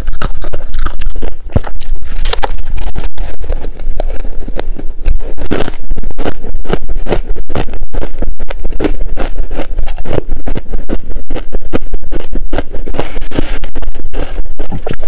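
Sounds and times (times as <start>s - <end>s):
ice being chewed: 0.0s - 11.5s.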